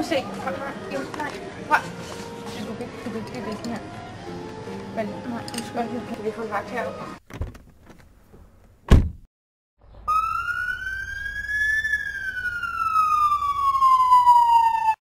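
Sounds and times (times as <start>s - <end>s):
sharp thump: 8.9s - 9.3s
siren wailing: 10.0s - 15.0s.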